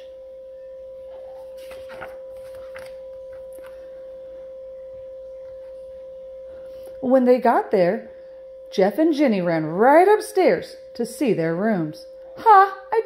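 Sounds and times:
steady high-pitched tone: 0.0s - 13.0s
paper page rustling: 1.2s - 3.8s.

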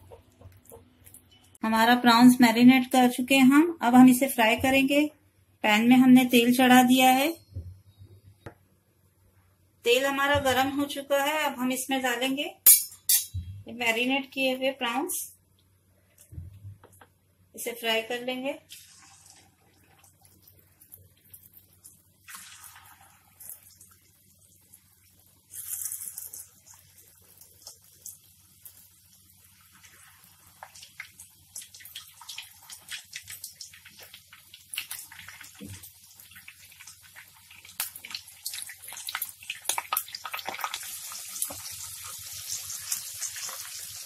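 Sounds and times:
prawns sizzling in hot oil: 18.7s - 44.0s.

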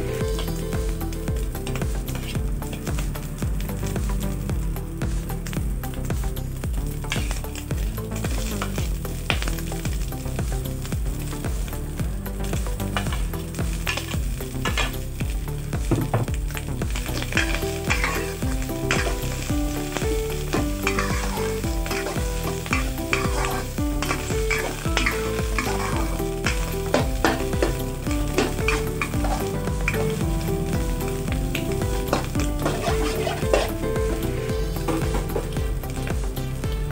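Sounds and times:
food sizzling in a wok: 0.0s - 36.9s
spatula scraping a pan: 17.4s - 30.1s, 31.9s - 35.6s.

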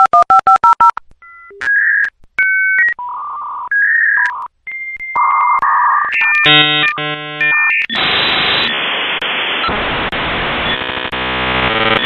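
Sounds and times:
touch-tone dialing beeps: 0.0s - 7.9s
modem electronic tones: 0.0s - 9.8s, 10.5s - 12.0s.

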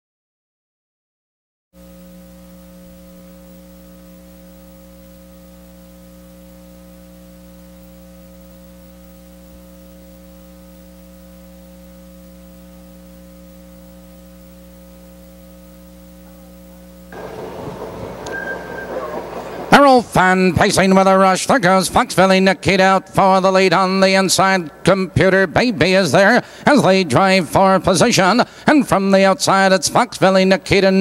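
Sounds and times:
electrical mains hum: 1.8s - 31.0s
recording hiss: 17.1s - 30.6s.

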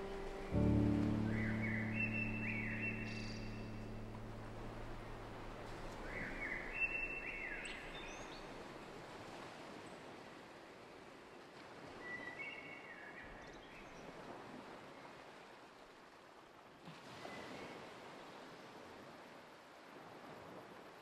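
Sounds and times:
high chirping tones: 0.0s - 7.9s
outdoor ambience hiss: 0.0s - 9.4s.

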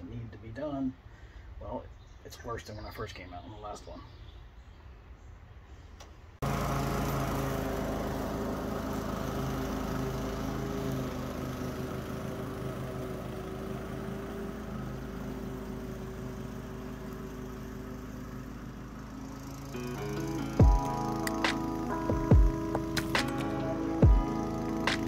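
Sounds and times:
lawn mower engine cutting grass: 6.4s - 25.0s.

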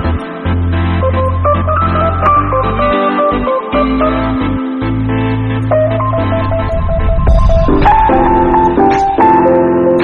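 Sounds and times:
sustained keyboard chords: 0.0s - 10.0s
steady bass note: 5.8s - 9.2s.

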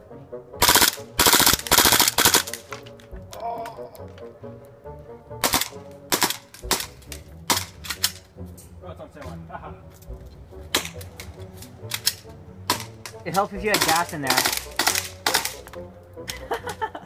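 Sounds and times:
faint music: 0.0s - 17.0s
airsoft pistol firing: 0.6s - 2.8s, 5.4s - 8.2s, 10.8s - 11.1s, 11.9s - 15.7s.

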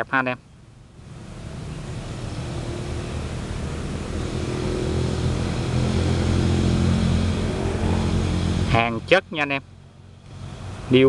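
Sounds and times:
vehicle engine droning: 0.0s - 11.0s.

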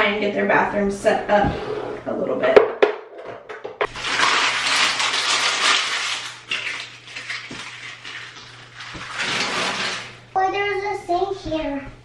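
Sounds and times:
plastic packaging crinkling: 3.9s - 10.2s.

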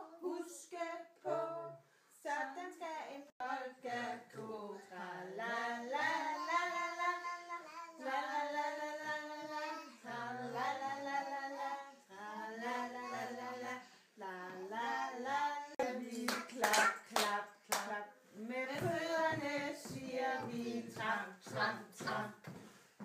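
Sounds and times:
toddler singing: 4.6s - 13.8s, 14.4s - 17.1s, 18.7s - 22.3s.

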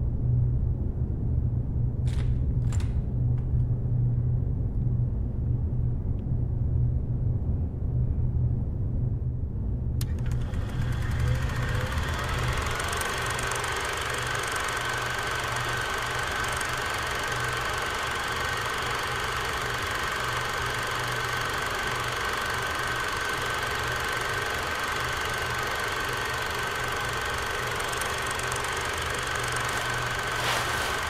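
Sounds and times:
film projector whirring: 10.0s - 31.0s.

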